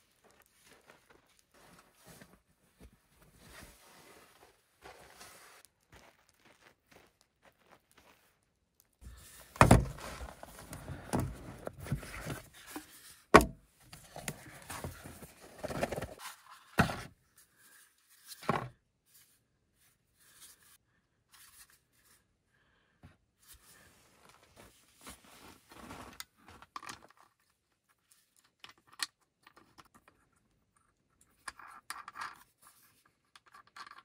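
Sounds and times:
rustling and handling noises: 0.0s - 22.3s, 23.4s - 34.0s
sharp thunks: 9.6s - 10.0s.

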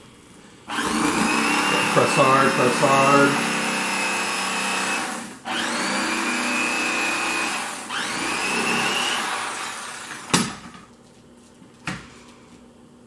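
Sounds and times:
electric knife motor whining: 0.7s - 10.3s.

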